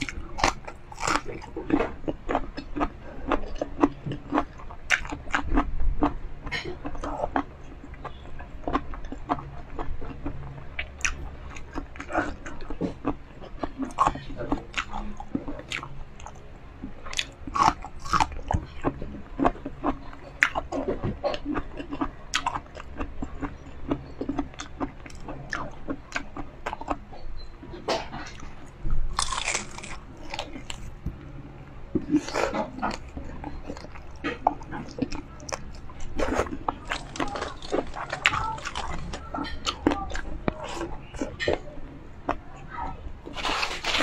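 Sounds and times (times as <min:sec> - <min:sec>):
crunching and chewing: 0:00.0 - 0:44.0.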